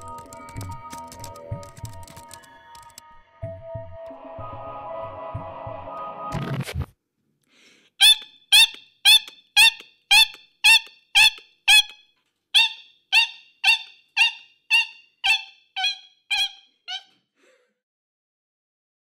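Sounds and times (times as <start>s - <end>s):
squeaky cartoon laugh: 12.6s - 17.2s.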